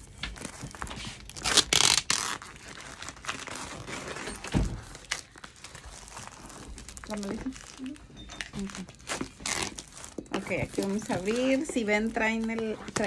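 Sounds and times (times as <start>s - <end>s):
cardboard crinkling: 0.0s - 13.0s
tape ripping off cardboard: 0.4s - 5.3s, 9.0s - 10.4s.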